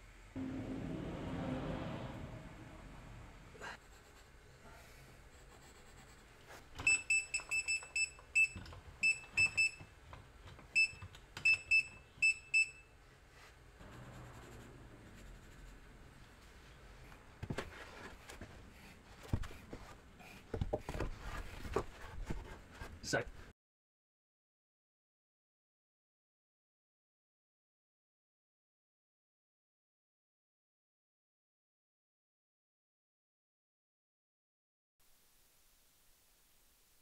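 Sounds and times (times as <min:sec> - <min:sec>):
knocks and shuffling: 0:16.2 - 0:23.5.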